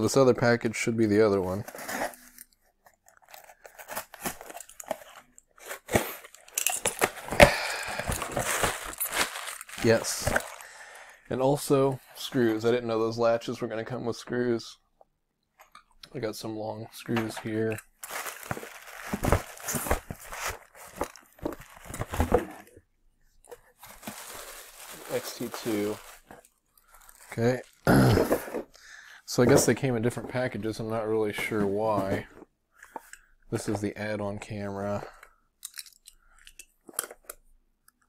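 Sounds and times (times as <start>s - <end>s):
cardboard and paper rustling: 1.5s - 10.7s, 17.2s - 22.7s, 23.5s - 28.7s, 31.2s - 33.8s
packaging crinkling and tearing: 1.6s - 10.9s, 17.9s - 22.3s, 23.8s - 28.0s.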